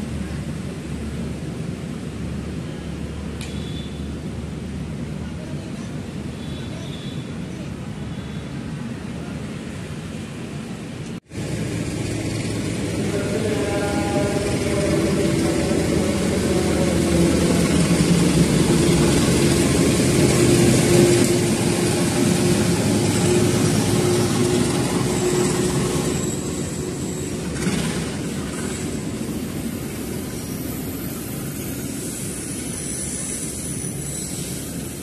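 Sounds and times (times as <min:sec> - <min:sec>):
diesel locomotive engine drone: 0:00.0 - 0:35.0
train wheels rumbling on rails: 0:10.1 - 0:35.0.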